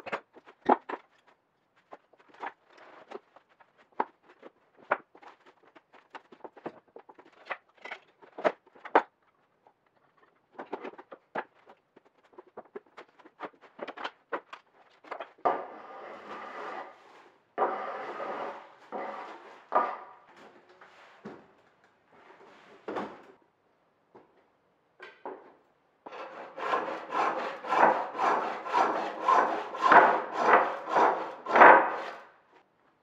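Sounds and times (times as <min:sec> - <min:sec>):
wooden stick scraping board: 0:00.0 - 0:09.0, 0:10.1 - 0:20.2, 0:26.1 - 0:32.3.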